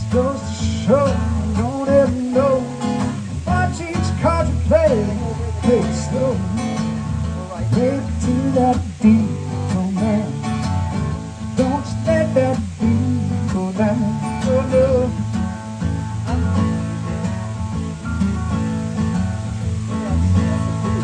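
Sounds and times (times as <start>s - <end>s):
acoustic guitar playing: 0.0s - 21.0s.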